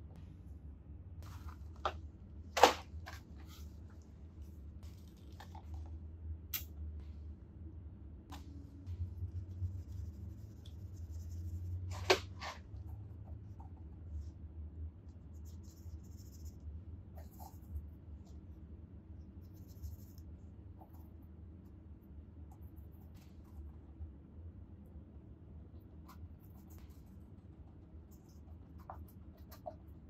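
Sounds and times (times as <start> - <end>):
low steady hum: 0.0 - 30.0
paintbrush scratching on canvas: 8.9 - 12.7.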